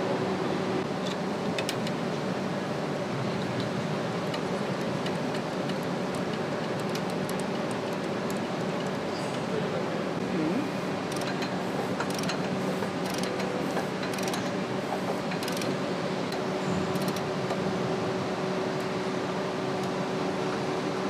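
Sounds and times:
steady mechanical hum: 0.0 - 21.0
sharp metallic clicks: 11.1 - 14.5, 15.3 - 17.6.

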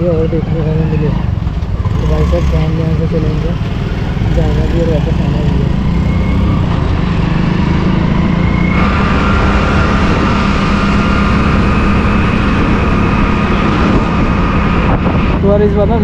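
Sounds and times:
motorcycle engine running: 0.0 - 16.0
wind and road noise: 0.0 - 16.0
steady high whine: 5.8 - 16.0.

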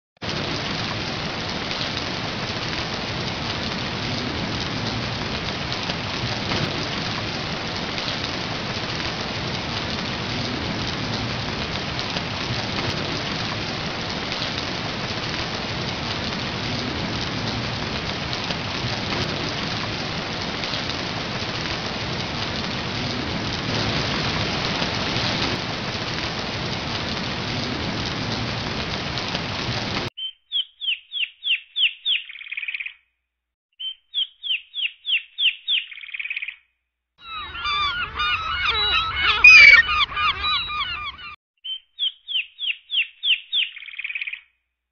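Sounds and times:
steady rain falling: 0.2 - 30.1, 37.3 - 41.4.

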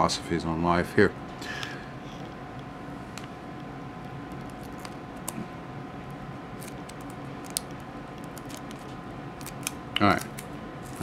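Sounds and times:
background hum: 0.0 - 11.0
packing tape clicks and rustles: 6.6 - 11.0.

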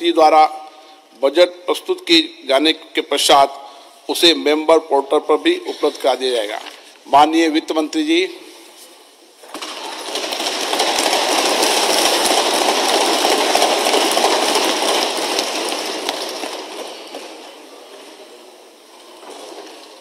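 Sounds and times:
people thumping desks: 9.4 - 17.4.

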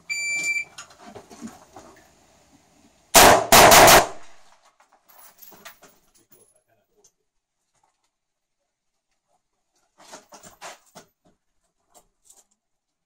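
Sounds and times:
rifle firing rapid shots: 3.2 - 4.4.

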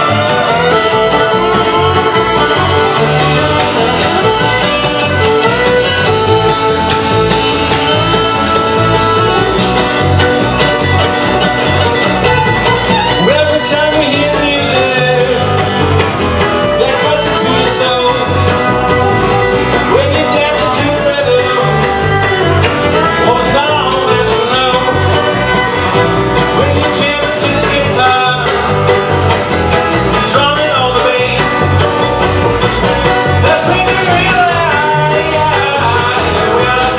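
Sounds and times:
acoustic guitar: 0.0 - 36.9
banjo: 0.0 - 36.9
fiddle: 0.0 - 36.9
upright bass: 0.0 - 36.9.

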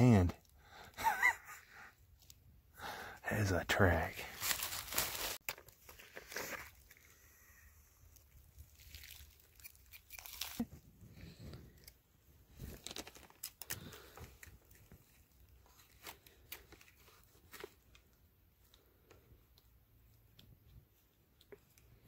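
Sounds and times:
dry leaves crunching underfoot: 4.3 - 5.4.

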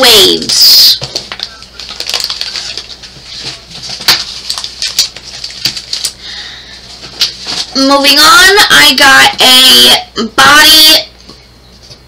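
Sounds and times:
plastic packaging crinkling: 1.0 - 6.2.

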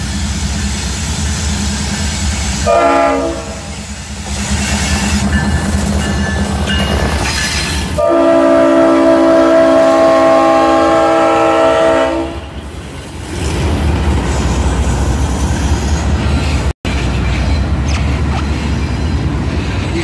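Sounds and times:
train rumbling past: 0.0 - 20.0
locomotive air horn blast: 2.6 - 3.9, 7.9 - 12.5.

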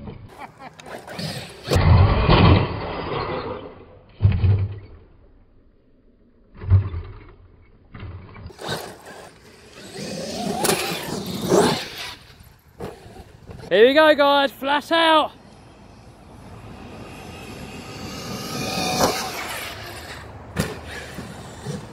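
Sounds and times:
electric rc truck motor whine: 0.8 - 5.1, 6.3 - 13.7, 15.5 - 21.9
rc truck thudding on grass: 7.9 - 13.7, 18.2 - 21.9.

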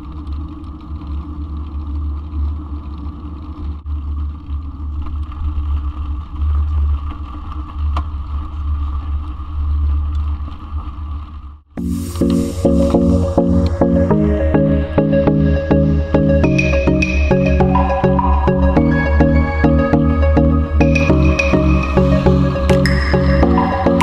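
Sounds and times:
bike tyre rolling: 0.0 - 13.2.

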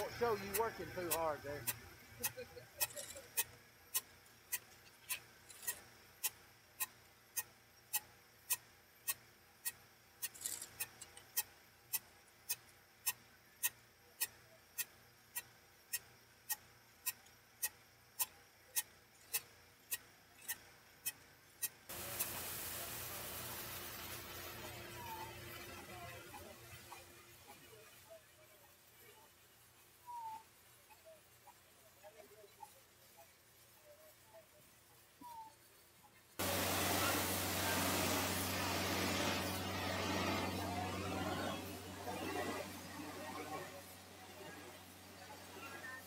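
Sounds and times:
compressed air spraying hiss: 21.9 - 24.8, 36.4 - 42.1.

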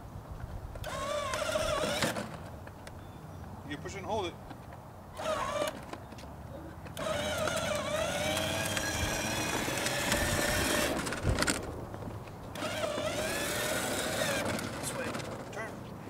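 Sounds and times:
electric motor whining: 0.8 - 2.5, 5.2 - 5.9, 6.9 - 11.7, 12.5 - 15.5.

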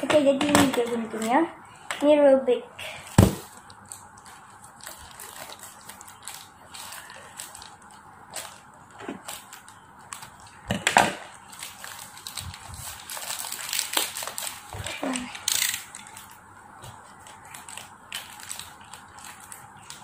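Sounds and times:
plastic wrap crinkling: 3.2 - 20.0.

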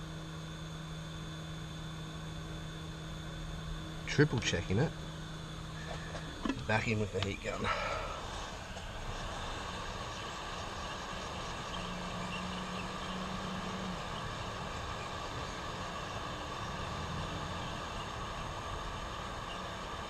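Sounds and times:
hot-air gun blowing: 7.4 - 20.0.

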